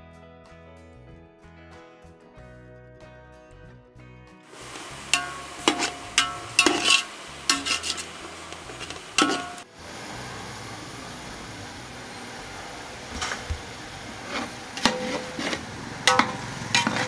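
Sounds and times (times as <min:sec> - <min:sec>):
food sizzling: 0:04.5 - 0:17.0
spatula scraping and clanking on pot: 0:04.6 - 0:09.7, 0:13.2 - 0:17.0.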